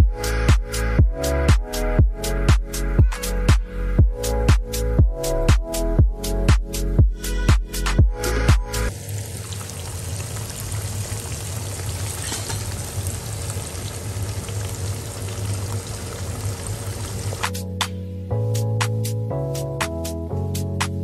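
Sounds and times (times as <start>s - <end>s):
fish deep-frying in hot oil: 8.9s - 17.5s.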